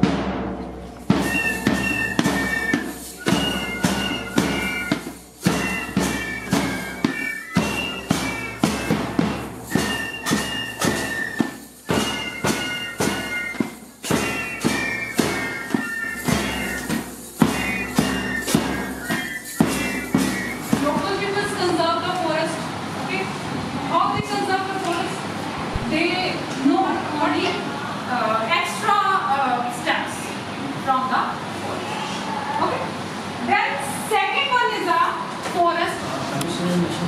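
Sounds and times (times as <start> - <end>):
percussive beat: 0.0 - 21.4
high sustained melody: 1.1 - 21.1.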